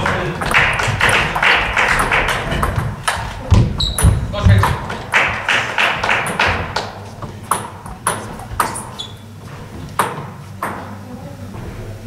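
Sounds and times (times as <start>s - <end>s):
table tennis ball pinging: 0.0s - 9.2s, 9.9s - 11.0s.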